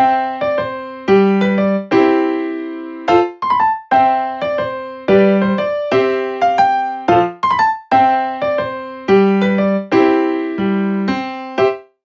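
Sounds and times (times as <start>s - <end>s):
light keyboard melody: 0.0s - 12.0s.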